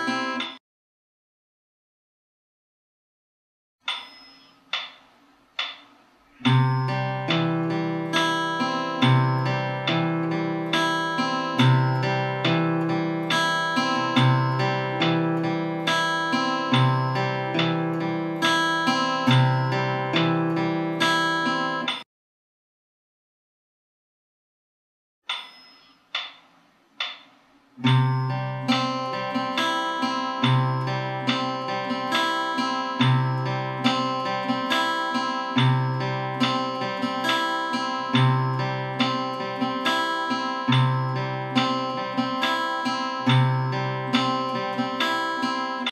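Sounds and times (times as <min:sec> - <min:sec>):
fingerpicked acoustic guitar: 0:00.0 - 0:00.5, 0:06.4 - 0:21.9, 0:27.8 - 0:45.9.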